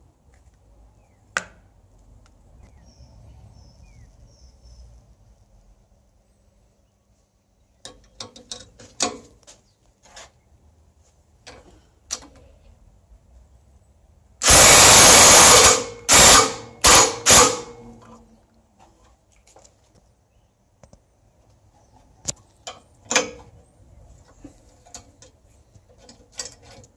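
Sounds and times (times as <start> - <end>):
impact driver hammering on bolt: 14.4 - 17.8.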